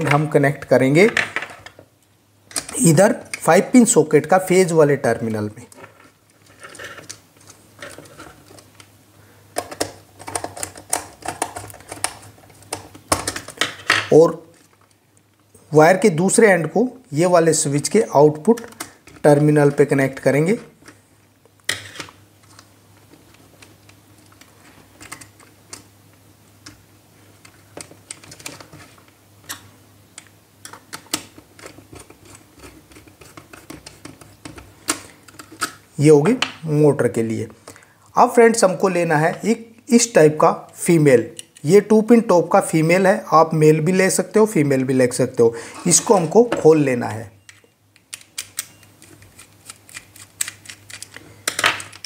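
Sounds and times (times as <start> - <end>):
small clicks and scrapes: 5.7 - 8.9, 27.4 - 35.8, 47.5 - 52.0.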